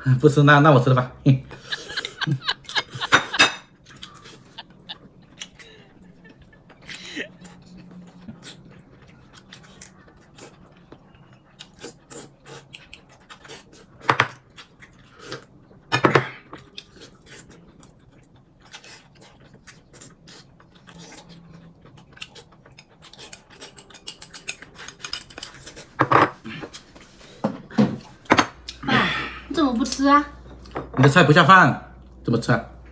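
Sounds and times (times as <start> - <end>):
chewing and mouth noises: 3.8 - 15.6, 16.5 - 26.0.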